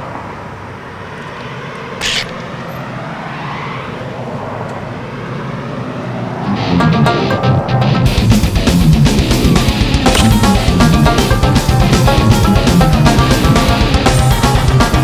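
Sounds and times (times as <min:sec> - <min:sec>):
outdoor rumble and hiss: 0:00.0 - 0:06.5.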